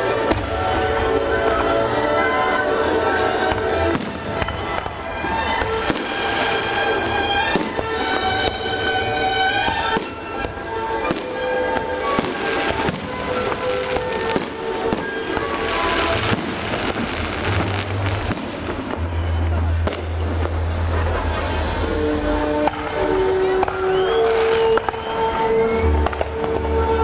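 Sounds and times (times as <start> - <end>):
fireworks bangs: 0.0 - 27.0
fireworks crackling: 0.0 - 27.0.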